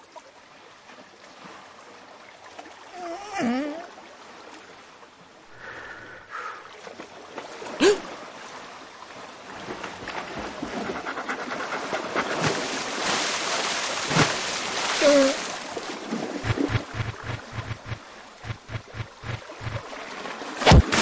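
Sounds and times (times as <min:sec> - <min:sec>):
cartoon water splashing: 0:07.8 - 0:08.0, 0:16.4 - 0:19.8, 0:20.6 - 0:21.0.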